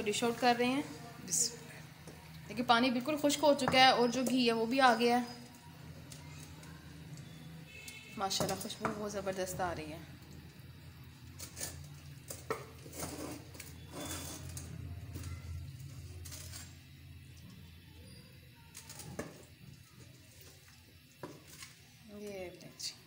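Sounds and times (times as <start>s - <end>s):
ladle scraping metal pot: 11.4s - 14.8s.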